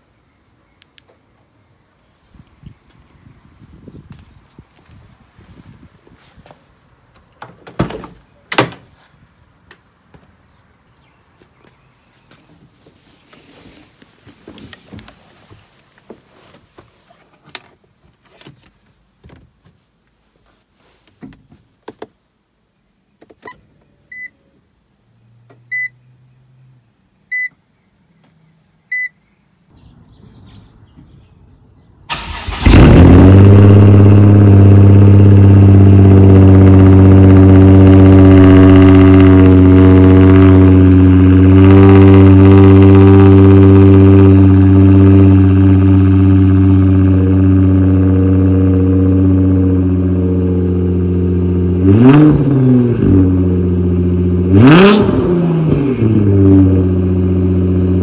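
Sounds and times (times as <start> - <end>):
clicks: 0.8 - 1.2
short beeps: 25.7 - 26.0, 27.3 - 27.6, 28.9 - 29.2
car engine starting and idling: 32.1 - 58.0.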